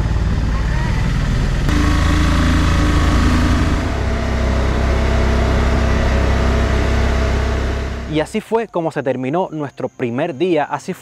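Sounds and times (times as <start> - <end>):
motor taxi engine running: 0.0 - 8.3.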